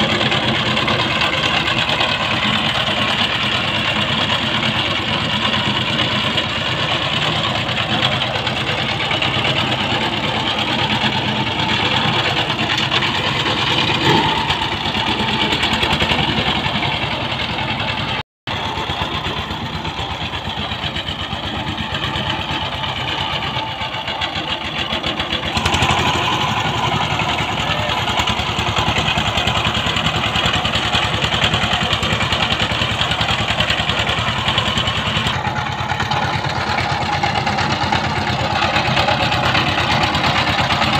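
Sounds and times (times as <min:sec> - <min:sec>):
diesel engine running: 0:00.0 - 0:40.9.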